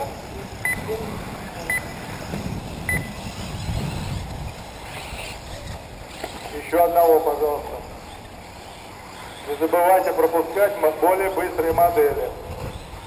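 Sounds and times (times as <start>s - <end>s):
short electronic beeps: 0.6s - 0.9s, 1.7s - 1.9s, 2.9s - 3.2s.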